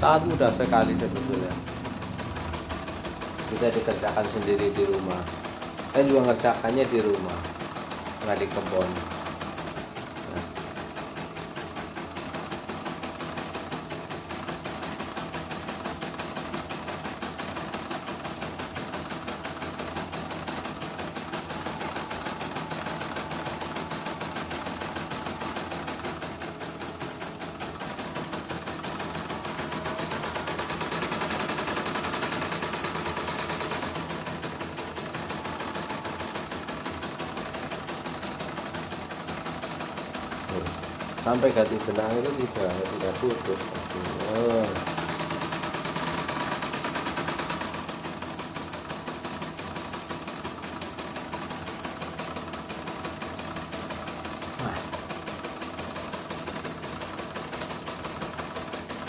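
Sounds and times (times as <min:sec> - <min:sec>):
embroidery machine needle clatter: 0:00.0 - 0:59.0.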